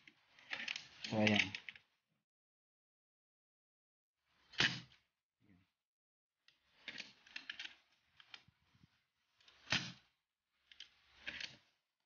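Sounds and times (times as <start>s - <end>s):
air rifle parts clicking and rattling: 0.3s - 1.8s, 6.7s - 8.5s.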